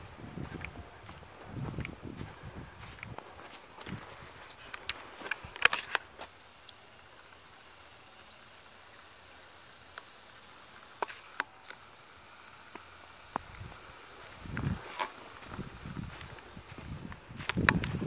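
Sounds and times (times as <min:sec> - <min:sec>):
faint steady hiss: 0:00.0 - 0:18.0
footsteps crunching on snow and leaves: 0:00.4 - 0:06.6, 0:12.8 - 0:18.0.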